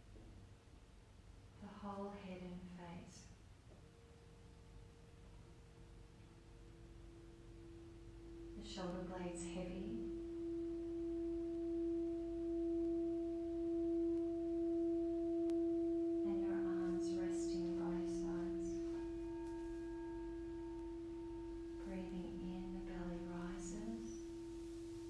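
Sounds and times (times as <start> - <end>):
singing bowl low hum: 0.0 - 25.0
higher ringing tones: 5.6 - 25.0.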